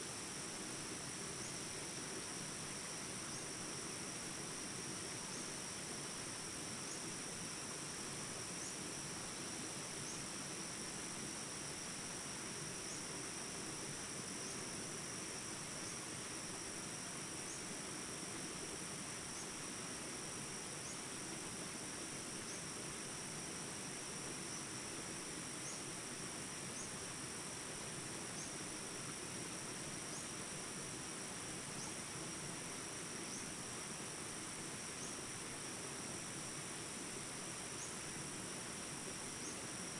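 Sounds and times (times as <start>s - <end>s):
high-pitched insect chorus: 0.0s - 39.9s
insect chirp: 0.0s - 39.9s.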